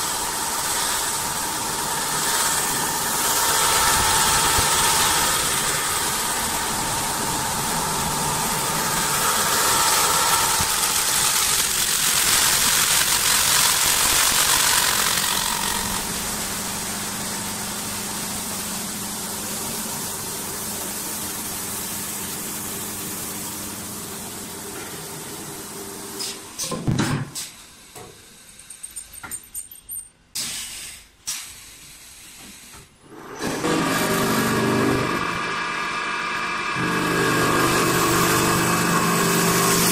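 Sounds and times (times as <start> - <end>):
wood lathe machine hum: 0.0 - 20.8, 33.1 - 39.9.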